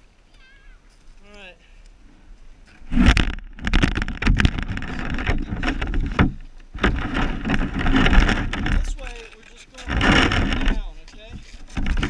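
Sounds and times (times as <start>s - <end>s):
sharp knocks: 2.9s - 9.1s.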